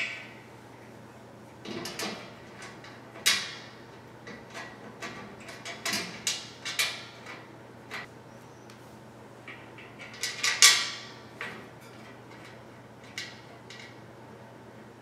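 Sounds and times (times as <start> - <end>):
metal bolts clinking on rail: 9.5 - 14.0.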